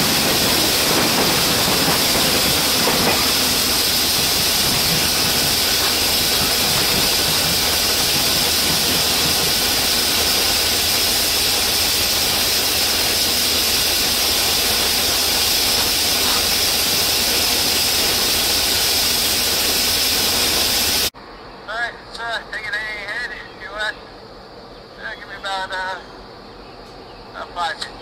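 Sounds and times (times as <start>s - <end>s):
compressed air hissing: 0.0s - 21.1s
locomotive engine running low: 0.0s - 21.1s.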